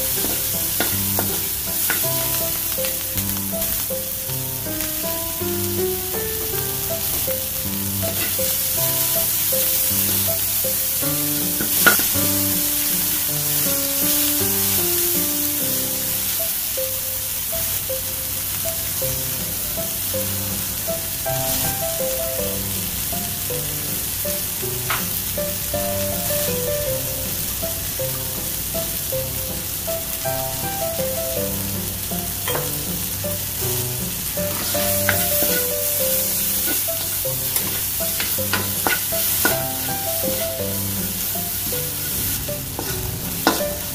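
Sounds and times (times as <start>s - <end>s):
background music: 0.0s - 43.9s
vegetables sizzling in hot oil: 0.0s - 43.9s.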